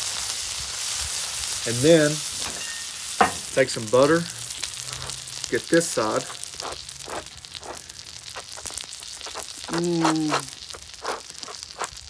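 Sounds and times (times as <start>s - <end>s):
butter sizzling on a griddle: 0.0s - 12.0s
man humming: 9.6s - 10.6s.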